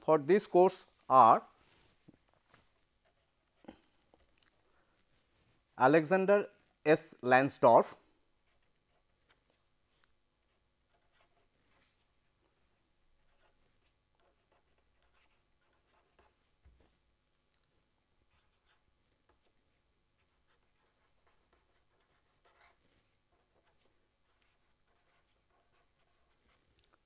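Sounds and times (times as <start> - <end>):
marker scratching on paper: 8.4 - 16.6, 18.3 - 26.7.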